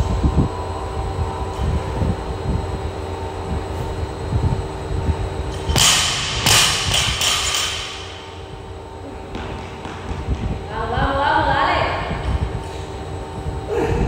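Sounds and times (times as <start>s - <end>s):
fan hum: 0.0s - 14.0s
barbell dropped on gym floor: 5.5s - 8.4s.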